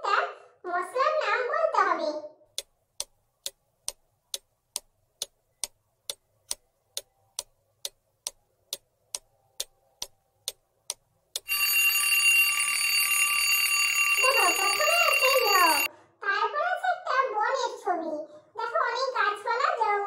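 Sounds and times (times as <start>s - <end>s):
clock ticking: 2.6s - 12.2s, 14.1s - 15.9s
alarm clock bell ringing: 11.4s - 15.9s.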